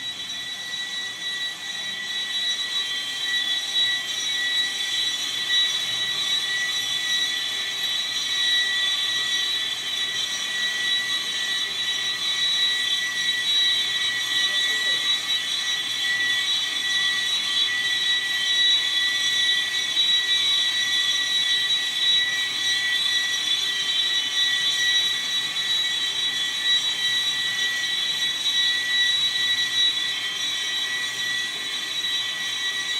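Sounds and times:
boring machine high-pitched whine: 0.0 - 32.9.

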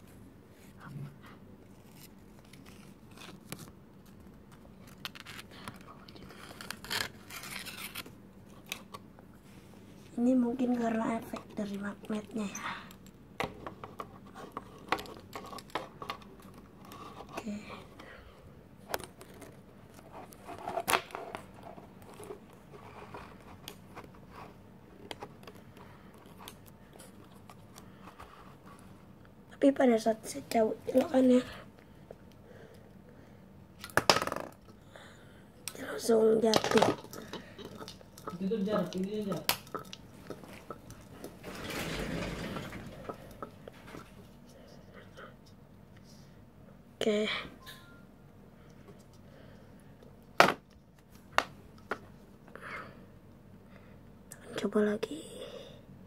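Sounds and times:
faint steady hum: 0.0 - 56.0
paper rustling and scraping: 4.8 - 8.2.

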